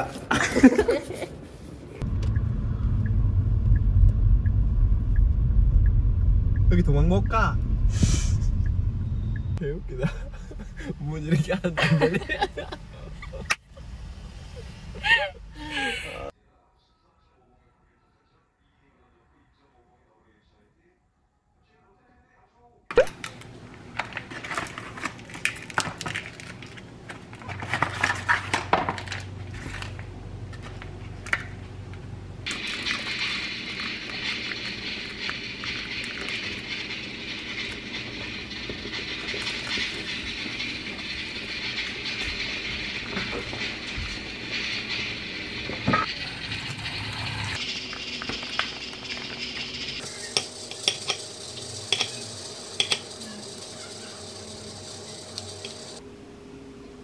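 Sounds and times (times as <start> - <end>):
low steady hum: 2.0 - 16.3
packaging crinkling and rustling: 23.9 - 30.0.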